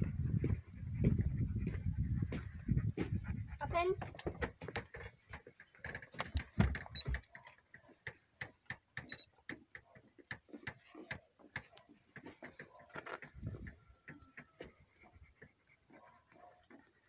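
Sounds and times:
dog panting: 0.0 - 6.0, 9.8 - 17.0.

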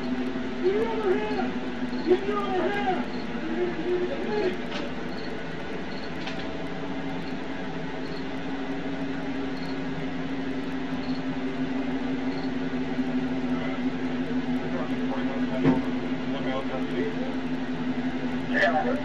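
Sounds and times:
car steady low hum: 0.0 - 19.0.

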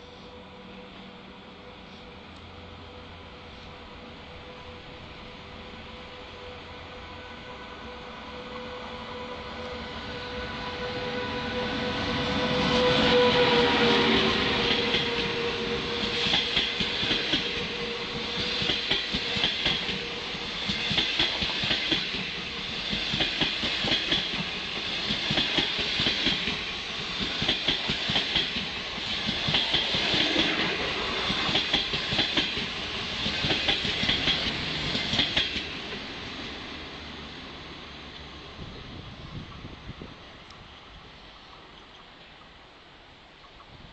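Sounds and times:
electric locomotive whine: 0.0 - 43.9
train wheels clicking over rail joints: 14.6 - 36.0.

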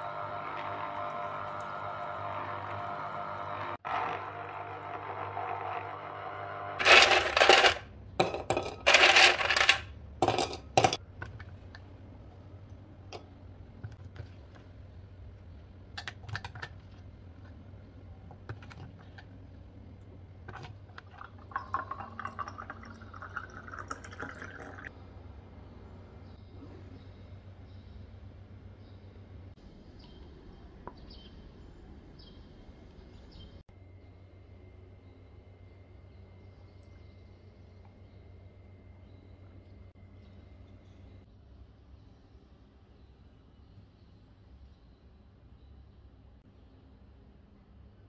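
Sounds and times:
citrus juicer noisy bursts: 0.0 - 7.5.

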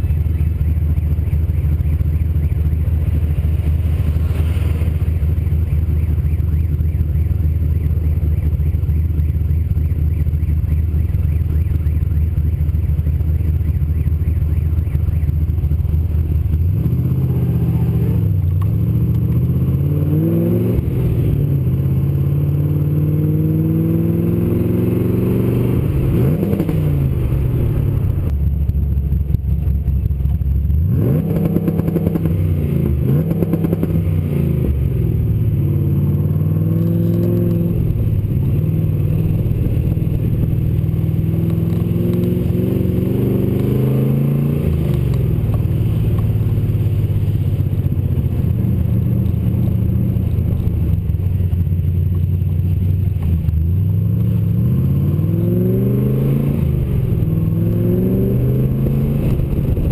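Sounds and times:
car engine revving: 0.0 - 59.9.

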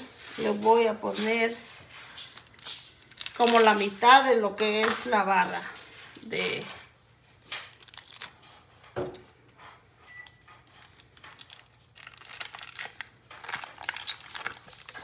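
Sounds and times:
foil wrapper crinkling and tearing: 2.2 - 4.0, 7.4 - 8.6, 10.6 - 15.0.

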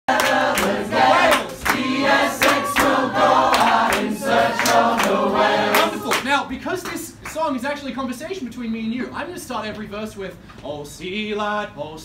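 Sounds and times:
group singing a sea shanty: 0.1 - 6.2
hand claps: 0.1 - 7.4.

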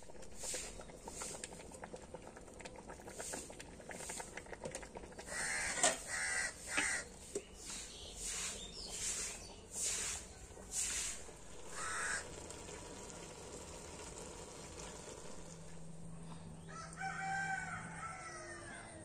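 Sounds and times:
faint steady crackle: 0.0 - 6.0, 8.9 - 16.6
crows cawing: 5.2 - 7.1, 11.7 - 12.4.

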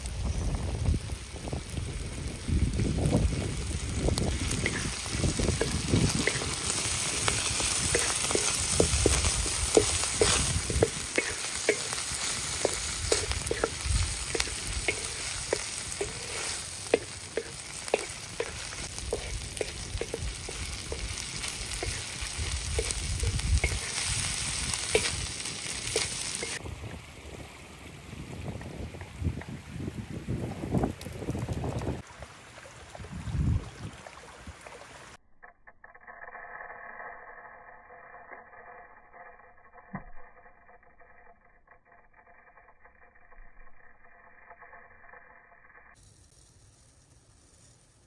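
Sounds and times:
food sizzling in a pan: 0.0 - 26.6, 45.7 - 48.0
stirring clicks and taps: 3.1 - 26.6.

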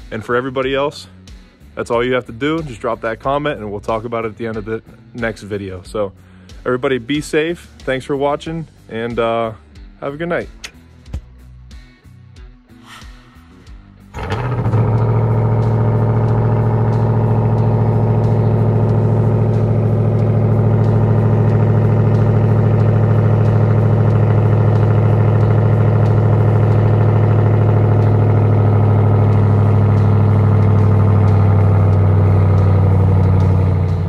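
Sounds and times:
engine running steadily: 12.8 - 34.0.

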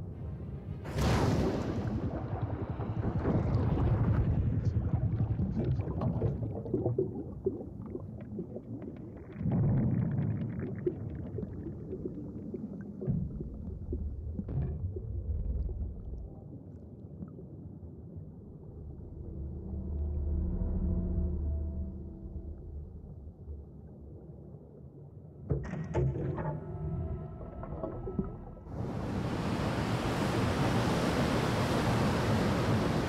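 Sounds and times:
crackling bubbles: 1.1 - 18.7
muffled underwater rumbling: 1.5 - 29.6.

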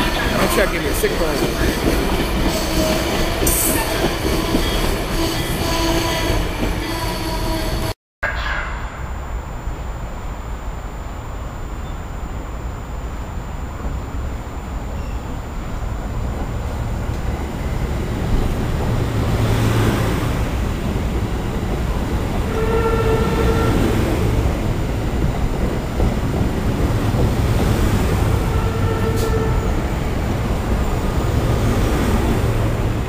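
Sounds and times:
train passing with rumbling wheels: 0.0 - 33.0
train horn: 22.5 - 24.6, 28.3 - 30.0.

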